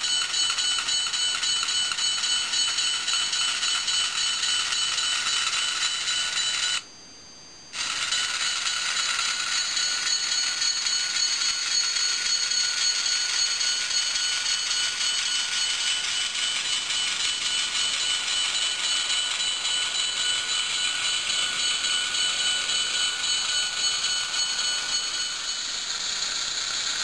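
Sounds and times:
model locomotive motor whine: 0.0 - 6.8, 7.7 - 27.0.

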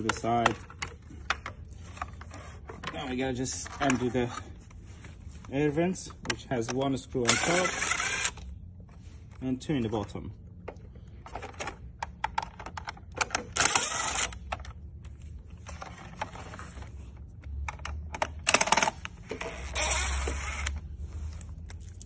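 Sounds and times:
cordless drill driving screws: 7.2 - 8.4, 13.6 - 14.4, 19.5 - 20.8.

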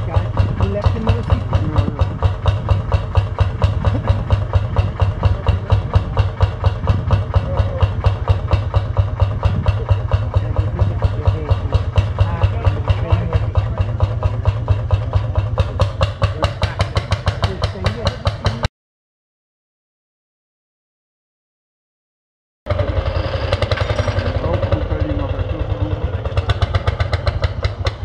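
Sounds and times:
single-cylinder tractor engine running: 0.0 - 18.7, 22.7 - 28.0.

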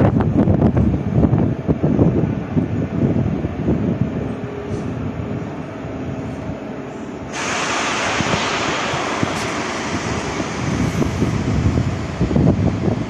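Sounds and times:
train rumble: 0.0 - 13.0
loud steady hiss: 6.2 - 13.0.

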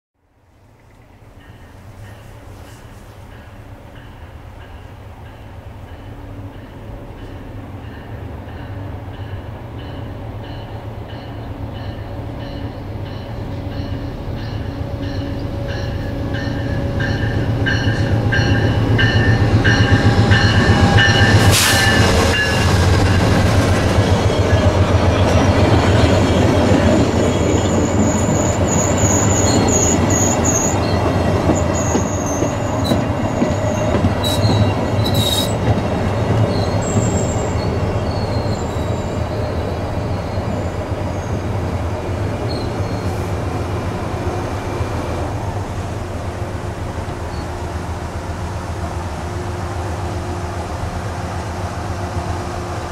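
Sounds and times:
diesel locomotive passing: 0.3 - 52.9
train brakes squealing: 5.9 - 23.4, 24.0 - 41.5, 42.4 - 43.5.

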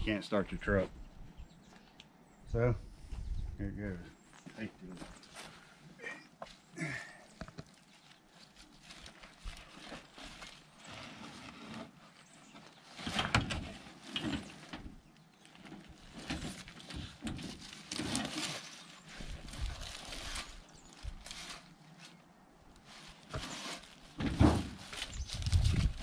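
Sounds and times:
person crawling over dry leaves: 5.2 - 12.4, 17.6 - 22.2, 22.8 - 26.0.

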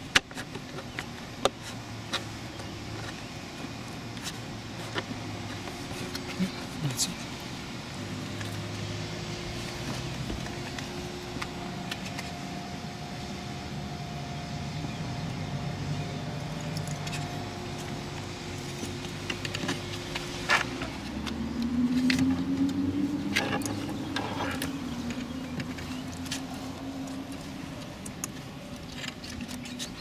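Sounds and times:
low drone rising in pitch: 6.1 - 28.6.

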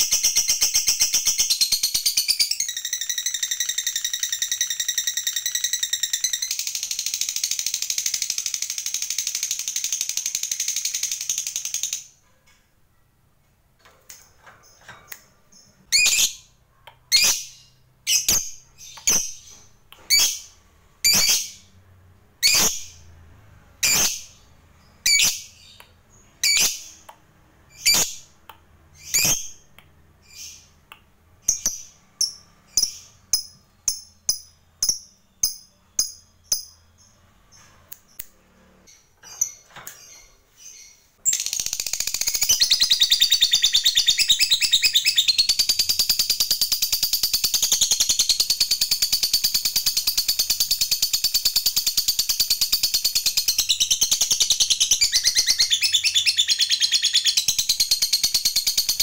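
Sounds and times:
bird sharp chirps: 14.6 - 21.8, 22.4 - 23.1, 23.8 - 38.3, 38.9 - 59.0.

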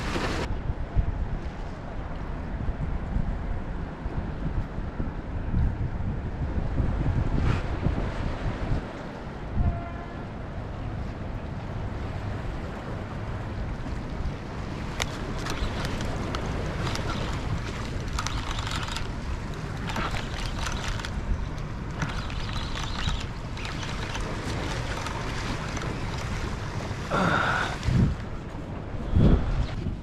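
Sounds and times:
waves washing against rocks: 0.0 - 0.5, 14.1 - 28.4
wind buffeting microphone: 0.0 - 30.0.

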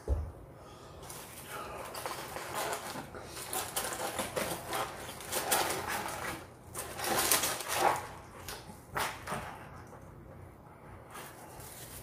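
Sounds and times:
paper and plastic crinkling: 1.0 - 9.6, 11.1 - 12.0.

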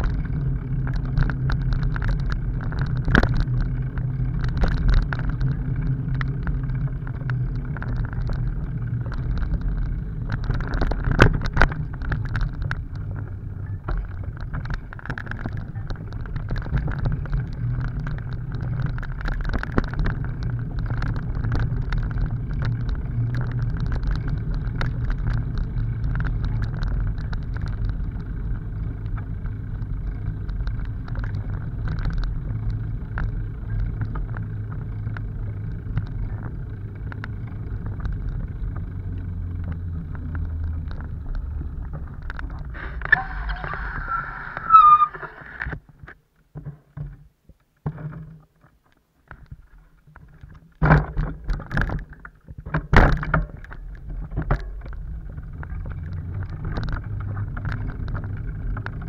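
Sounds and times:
bicycle frame rattle: 0.0 - 45.7
bicycle tyres rumbling on dirt: 0.0 - 59.0
bike knocking and rattling: 0.0 - 59.0
brake squeal: 42.5 - 45.7.

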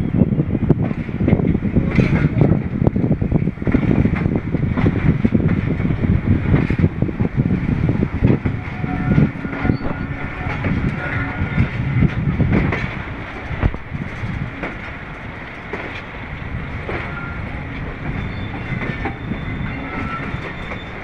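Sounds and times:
train rumble: 0.0 - 21.0
train wheels clattering over rail joints: 0.6 - 21.0.

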